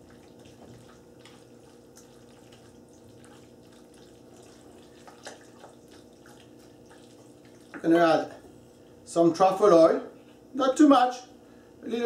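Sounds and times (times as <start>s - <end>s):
spoon stirring pasta in sauce: 0.0s - 7.9s
steady low hum: 0.0s - 12.0s.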